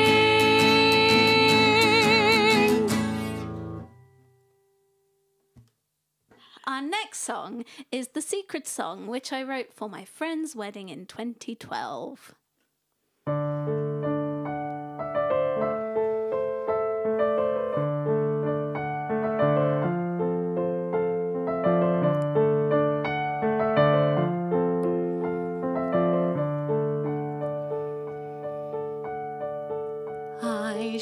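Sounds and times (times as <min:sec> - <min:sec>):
electronic keyboard piano broken chords: 0:13.3 - 0:30.4.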